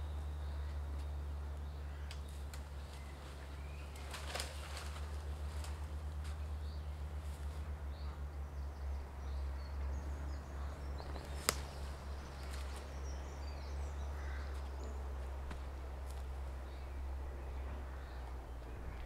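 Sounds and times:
faint birds chirping: 0.0s - 19.0s
sharp crack: 11.1s - 12.7s
low rumble: 14.8s - 19.0s.

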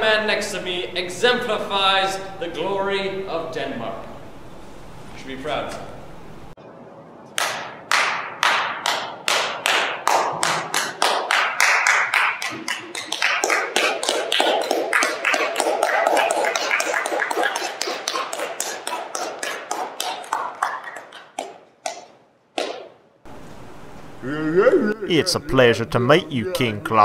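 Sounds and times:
slow hand claps echoing: 7.4s - 22.9s.

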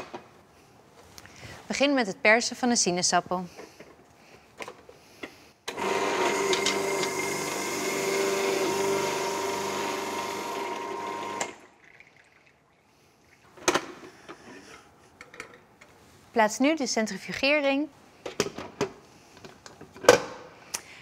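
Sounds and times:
juicer motor humming: 5.7s - 11.7s.

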